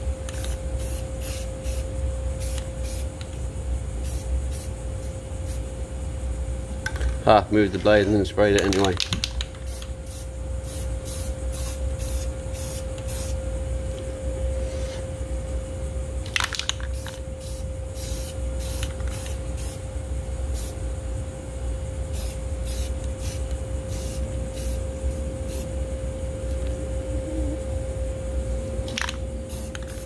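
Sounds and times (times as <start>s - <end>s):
steady hum: 0.0s - 30.0s
aerosol can spraying: 0.3s - 3.3s, 4.0s - 4.7s, 9.1s - 13.4s, 16.5s - 19.8s, 22.1s - 24.8s, 28.9s - 30.0s.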